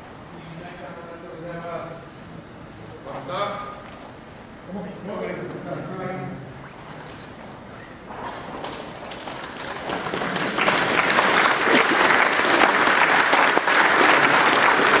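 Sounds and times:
audience applauding: 8.1 - 15.0.

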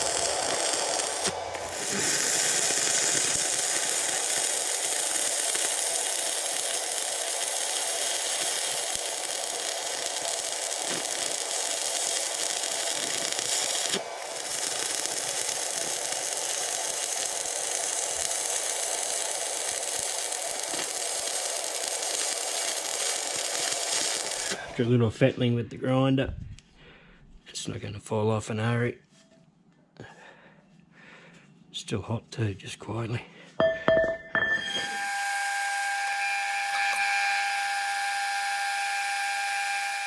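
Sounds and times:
arc welding crackling hiss: 0.0 - 24.6, 34.7 - 40.0.

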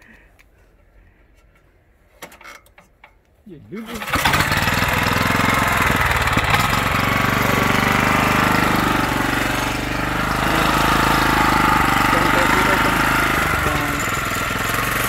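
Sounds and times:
small engine starting and running: 3.8 - 15.0.

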